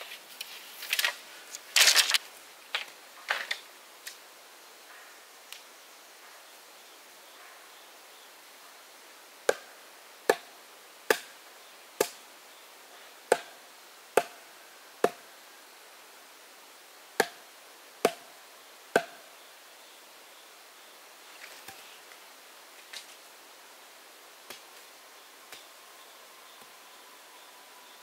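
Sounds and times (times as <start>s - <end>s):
axe chopping wood: 9.5s - 9.7s, 10.3s - 10.5s, 11.1s - 11.3s, 13.3s - 13.5s, 14.2s - 14.4s, 17.2s - 17.4s, 18.0s - 18.2s, 18.9s - 19.2s.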